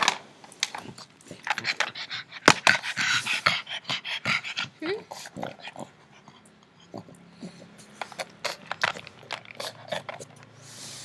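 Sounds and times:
dog claws clicking on tiles: 0.0s - 3.0s, 7.8s - 10.6s.

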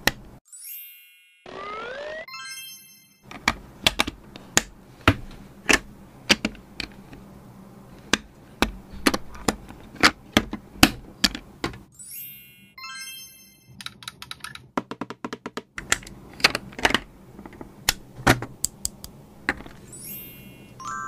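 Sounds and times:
chime sound effect: 0.4s - 3.3s, 11.9s - 13.8s, 19.8s - 21.0s
plastic bricks clicking together: 3.3s - 7.2s.

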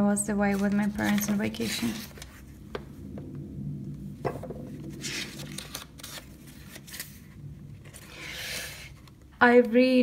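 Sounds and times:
paper pages rustling: 0.5s - 2.5s, 4.7s - 9.2s.

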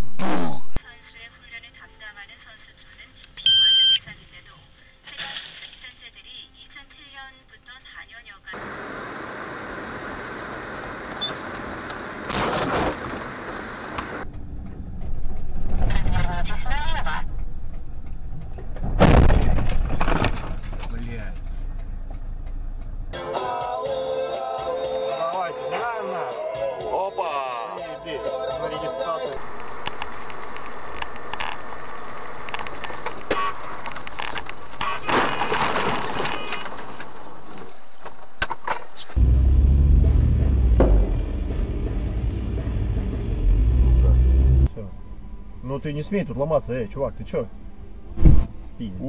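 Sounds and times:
road noise inside moving vehicle: 8.6s - 12.3s, 12.9s - 23.2s, 29.4s - 34.8s, 36.4s - 49.0s
low rumble: 14.2s - 23.2s, 39.2s - 49.0s.

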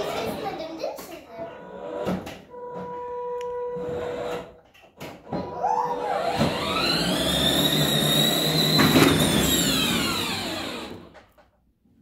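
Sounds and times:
toy car electric motor whining: 5.5s - 11.2s.

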